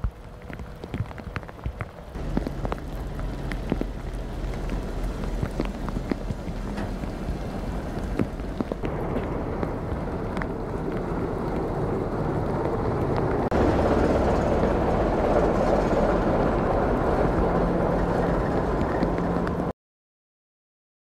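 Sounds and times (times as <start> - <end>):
low engine hum: 0.0 - 19.7
train rolling over rails: 0.4 - 19.7.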